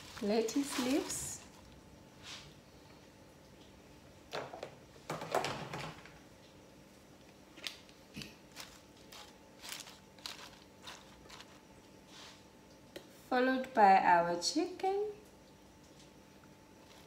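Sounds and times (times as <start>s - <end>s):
rustling and crunching: 0.0s - 2.5s, 7.5s - 12.4s.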